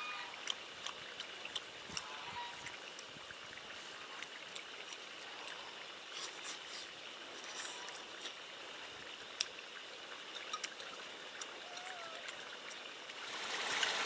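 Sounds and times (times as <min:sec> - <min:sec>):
soft chewing: 0:00.4 - 0:12.9.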